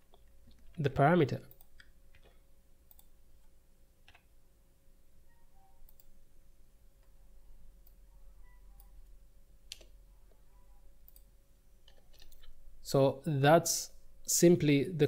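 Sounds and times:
faint steady hum: 0.0 - 15.0
mouse and keyboard clicks: 11.8 - 12.6.

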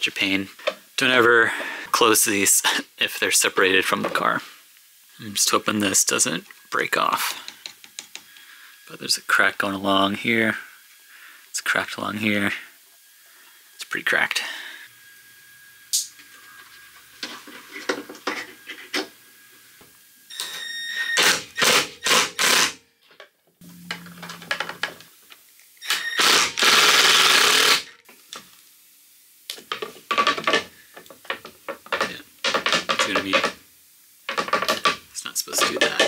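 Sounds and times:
steady hum: 23.6 - 25.4
loud hiss: 25.8 - 29.3
clicks and rattles of tools: 29.5 - 33.6.

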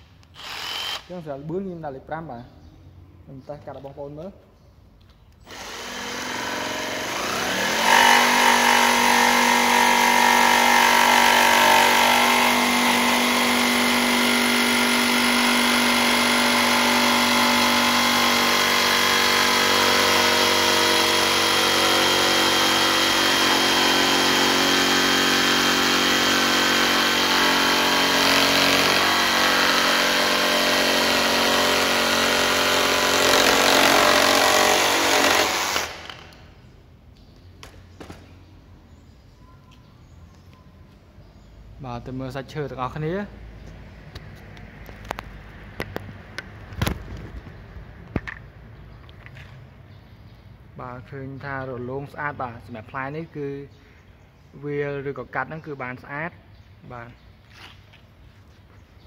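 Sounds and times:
jigsaw cutting wood: 0.4 - 1.1, 5.5 - 36.4.

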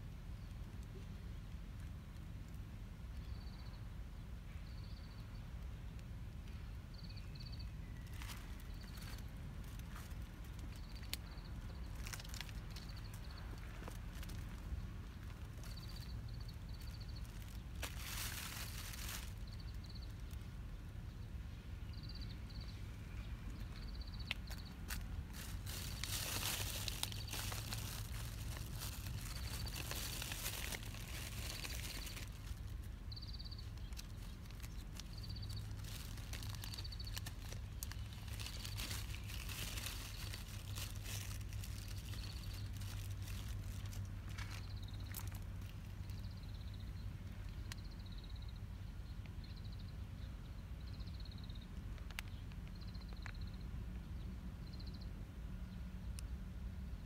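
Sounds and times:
low steady hum: 0.0 - 57.0
rustling: 8.0 - 20.4, 23.5 - 46.2.

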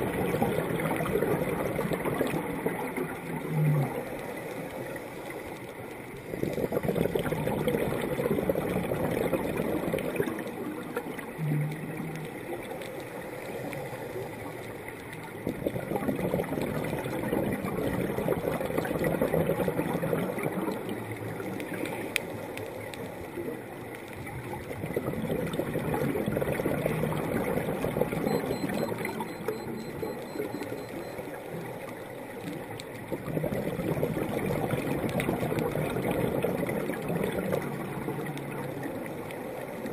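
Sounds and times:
underwater regulator bubbling: 0.0 - 5.0, 6.2 - 23.1, 24.1 - 39.9.

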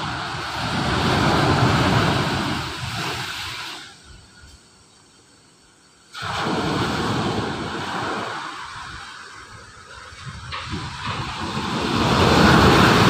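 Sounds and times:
surf washing up a beach: 0.0 - 4.8, 6.1 - 13.0.

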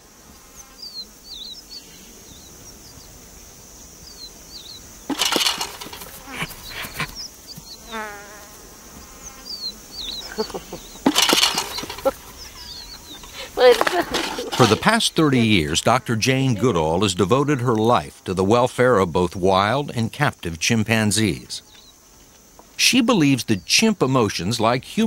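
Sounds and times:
insects buzzing: 0.0 - 25.0
bird chirps: 0.4 - 3.2, 4.0 - 8.0, 9.0 - 14.7.

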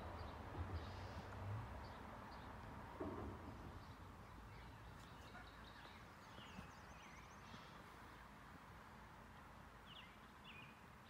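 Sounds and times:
soft knock: 3.0 - 3.6.

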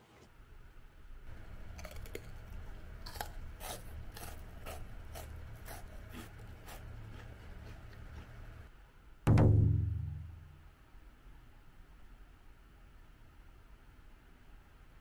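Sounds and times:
steady low hum: 0.2 - 15.0
crisp rice cracker crunches: 1.6 - 8.3.

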